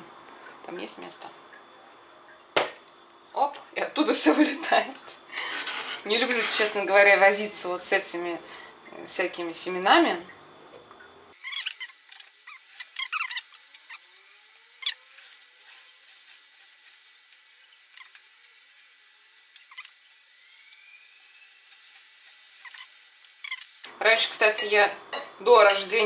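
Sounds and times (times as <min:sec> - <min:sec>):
blade squeaking through pepper: 0:11.4 - 0:17.1, 0:17.9 - 0:18.2, 0:19.5 - 0:23.8.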